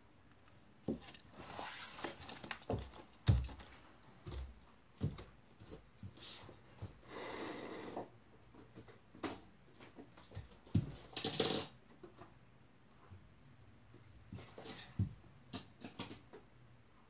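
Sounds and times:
knocks and thumps on floor: 2.6 - 3.7.

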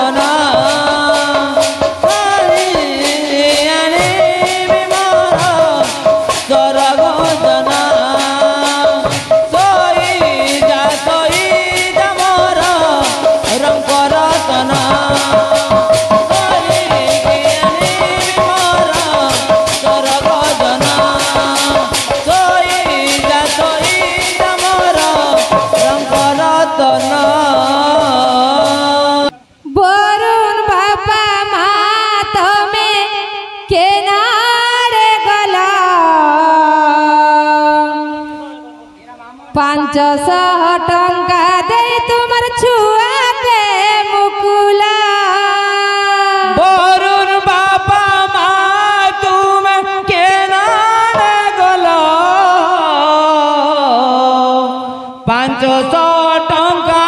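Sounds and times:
jingling percussion: 0.0 - 29.3
barrel drum: 0.0 - 29.4, 46.5 - 53.0.

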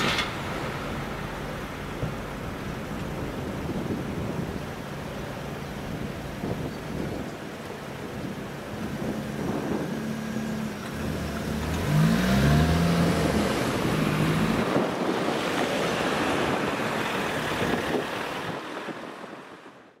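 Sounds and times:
car engines accelerating: 0.0 - 19.1.

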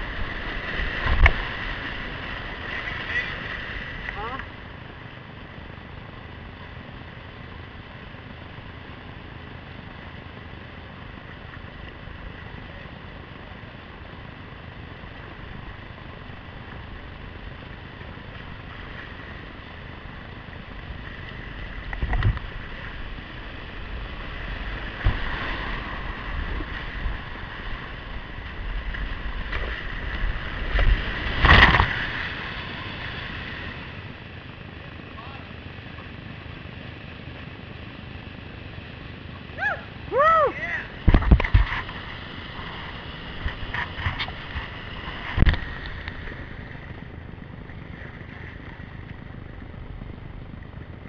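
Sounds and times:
kayak splashing through rapids: 0.0 - 4.8, 15.0 - 37.1
whitewater rushing: 39.6 - 46.3.

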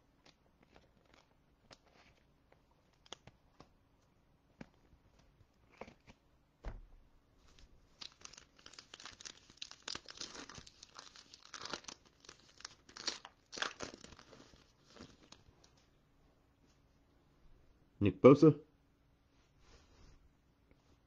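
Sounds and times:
soft bump: 6.6 - 7.0
foil wrapper tearing and crinkling: 8.0 - 15.5.

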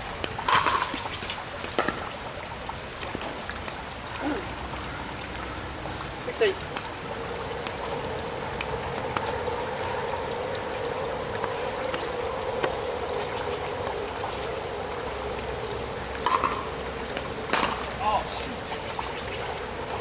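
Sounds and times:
drops ticking: 0.0 - 14.1
running water: 0.0 - 20.0
steady rain: 0.0 - 20.0.

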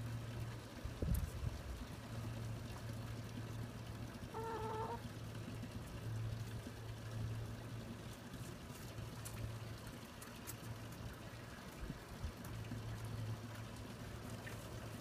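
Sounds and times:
low steady hum: 0.0 - 15.0
chicken call: 4.3 - 5.0.

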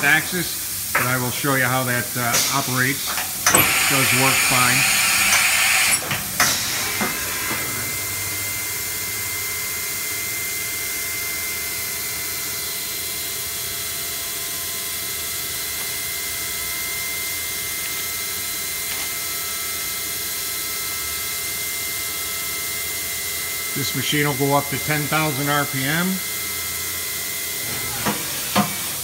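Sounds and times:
machine high whine: 0.0 - 14.0, 20.8 - 29.0.

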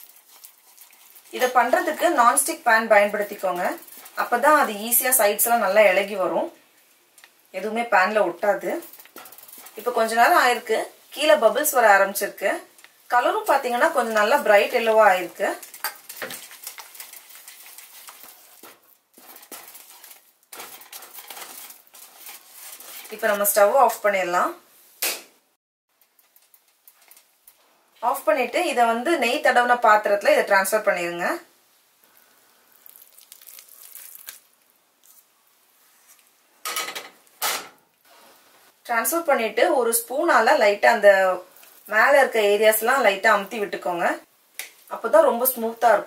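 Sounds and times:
spatula scraping thick batter: 0.0 - 2.0, 9.1 - 9.9, 16.1 - 23.6.

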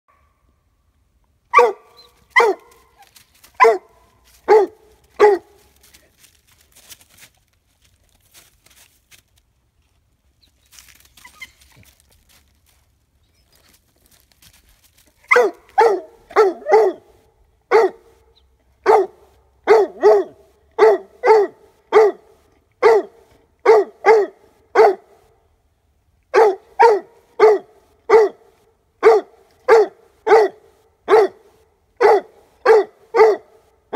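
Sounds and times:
dog barking: 1.5 - 2.9, 3.6 - 5.6, 15.3 - 17.1, 17.7 - 18.1, 18.8 - 25.1, 26.3 - 33.6.

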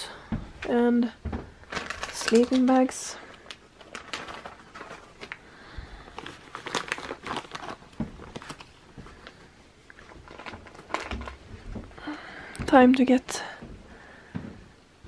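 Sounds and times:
plastic packet crinkling: 1.6 - 11.5.

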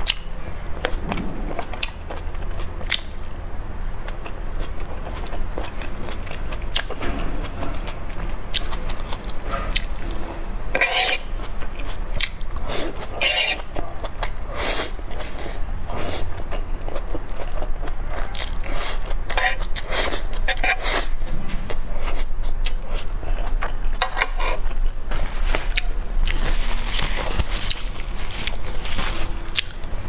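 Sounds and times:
chewing and mouth smacks: 29.5 - 30.0.

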